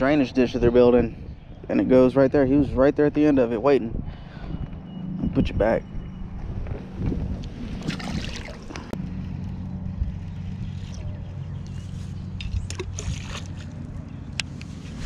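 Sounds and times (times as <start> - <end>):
low hum: 3.9 - 15.0.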